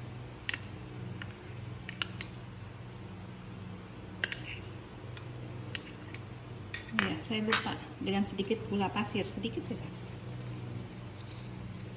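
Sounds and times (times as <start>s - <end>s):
metal spoon clinking on bowls: 5.8s - 8.0s.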